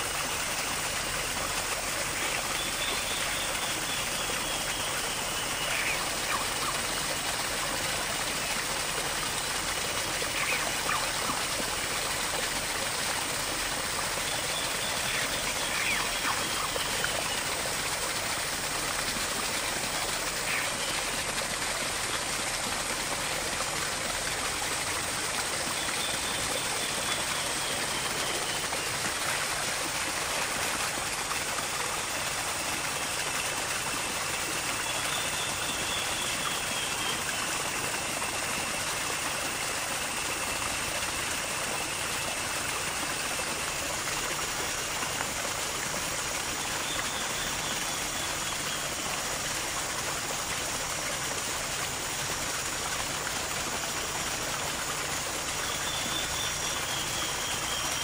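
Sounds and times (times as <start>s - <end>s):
running water: 0.0s - 58.0s.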